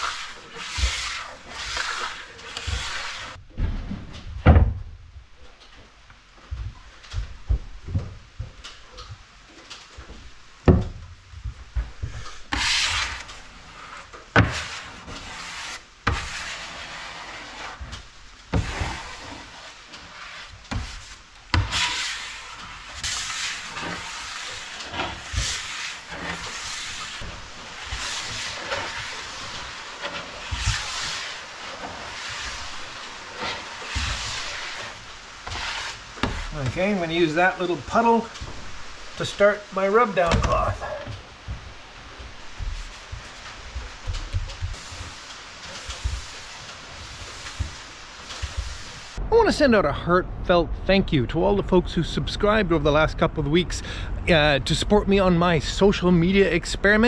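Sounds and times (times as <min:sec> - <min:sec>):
squeegee scraping plywood: 0:00.0 - 0:03.4, 0:12.0 - 0:49.2.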